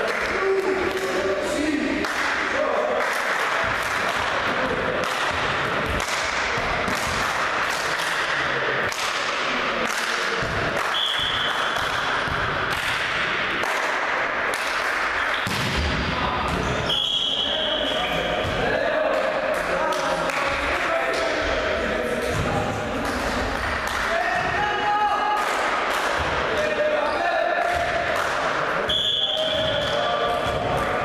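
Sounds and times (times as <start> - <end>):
whistle blast: 10.9 - 11.5, 16.8 - 18.1, 28.9 - 29.9.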